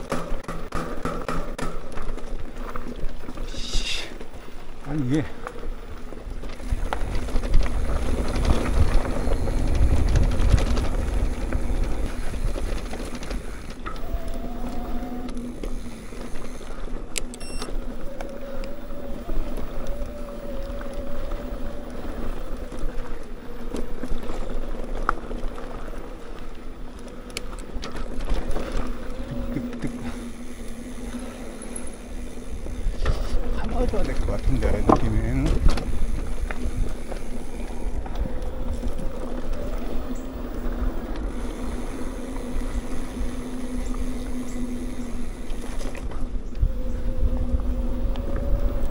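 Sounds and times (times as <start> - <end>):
bike rattles: 0.0 - 48.9
bike tyres rumbling: 0.0 - 48.9
wind buffeting microphone: 5.0 - 16.6, 28.3 - 48.9
humming tone: 13.8 - 23.2, 37.4 - 48.9.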